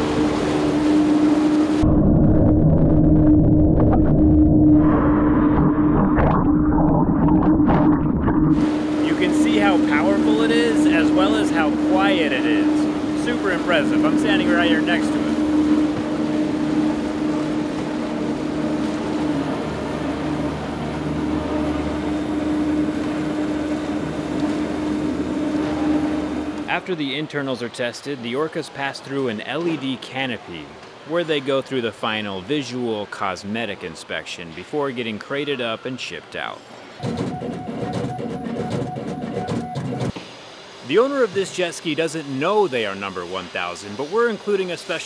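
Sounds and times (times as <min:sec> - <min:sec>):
churning bubbling water underwater: 0:00.0 - 0:26.6
steady low hum: 0:00.0 - 0:27.3.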